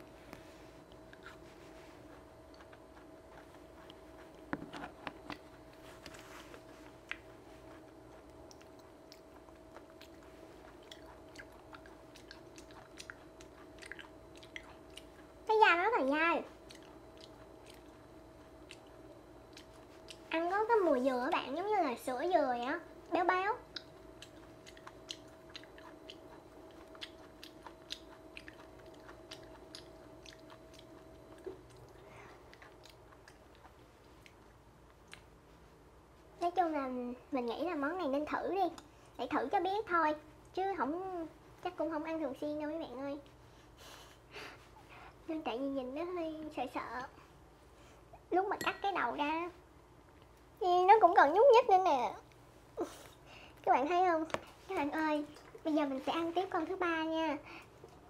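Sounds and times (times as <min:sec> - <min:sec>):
close chewing with mouth clicks: 0:00.8 - 0:20.4, 0:23.0 - 0:35.7.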